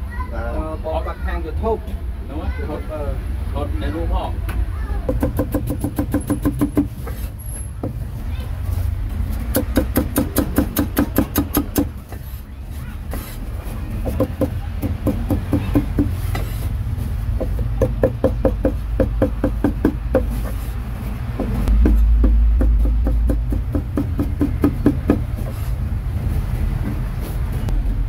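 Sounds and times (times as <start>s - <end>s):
cleaver chopping on block: 9.5s - 11.9s
low rumble: 20.8s - 28.0s.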